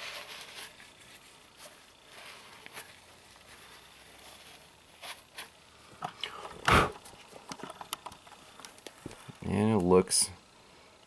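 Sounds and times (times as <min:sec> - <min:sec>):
paper towel rustling: 0:00.0 - 0:05.5.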